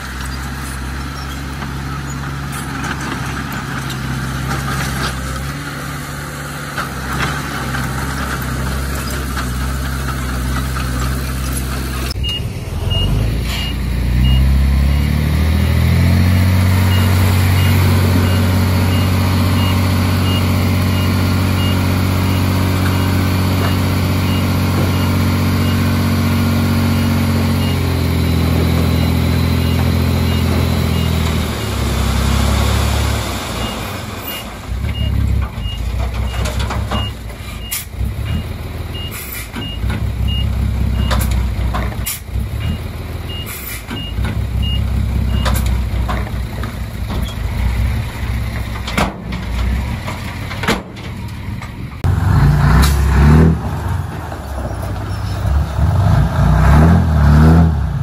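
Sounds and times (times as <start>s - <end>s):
heavy diesel machinery running: 0.0s - 58.0s
reversing alarm beeping: 12.1s - 15.2s, 16.8s - 31.9s
metallic clanks and knocks: 48.5s - 51.8s.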